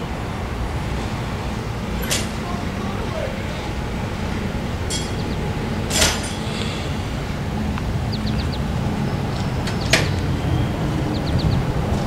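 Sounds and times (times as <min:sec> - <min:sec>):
engine idling: 0:00.0 - 0:12.0
sharp metallic clank: 0:02.0 - 0:02.4, 0:04.9 - 0:06.6.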